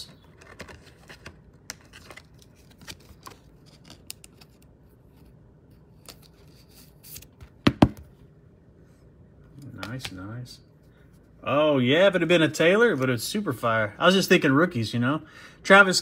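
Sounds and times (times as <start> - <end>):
cards clicking and rustling: 0.0 - 4.7.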